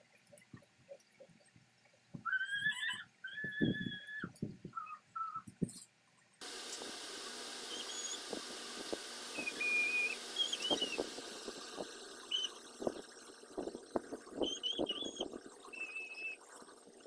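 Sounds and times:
steady hiss: 6.4 - 17.0
short whistle-like notes: 9.3 - 12.6
faint high chirps: 9.3 - 13.4, 14.3 - 16.4.

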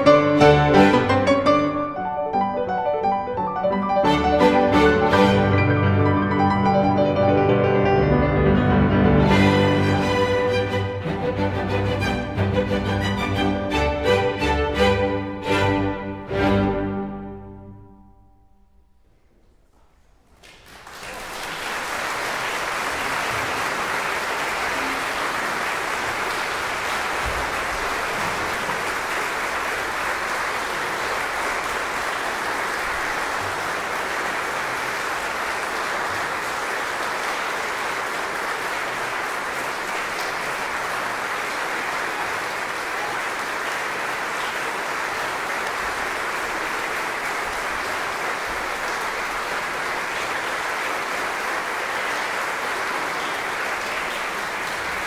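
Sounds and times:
audience applauding: 20.3 - 55.0.

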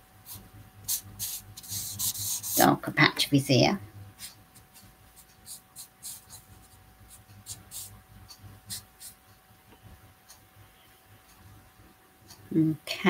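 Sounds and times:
marker rubbing on paper: 0.2 - 2.8, 4.2 - 8.0, 8.7 - 9.2.

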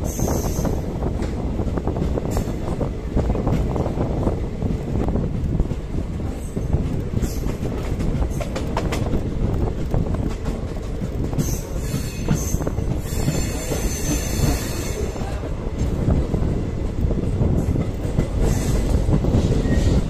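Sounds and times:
train rumbling: 0.0 - 20.0
wheels clicking over rail joints: 1.0 - 20.0
metallic wheel squeal: 11.4 - 15.1.

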